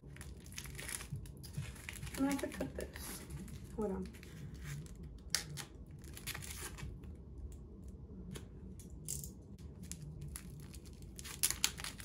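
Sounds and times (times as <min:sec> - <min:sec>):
plastic packaging crinkling: 0:00.0 - 0:07.1, 0:09.6 - 0:12.0.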